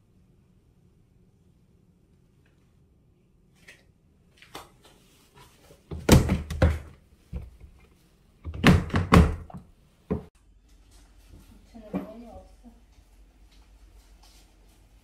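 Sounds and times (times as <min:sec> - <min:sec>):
plastic cabinet doors knocking: 0:08.5 - 0:10.3.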